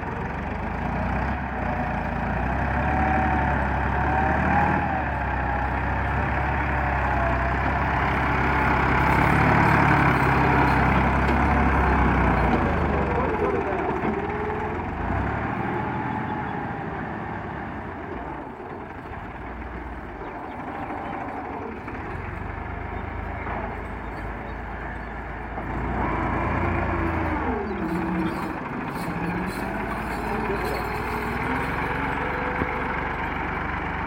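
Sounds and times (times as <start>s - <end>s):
tractor diesel engine under load: 0.0s - 34.0s
blade dragging soil: 25.9s - 33.2s.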